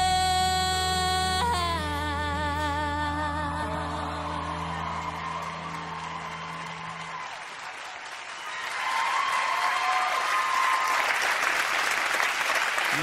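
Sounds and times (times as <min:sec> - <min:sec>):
audience applause: 0:04.1 - 0:13.0.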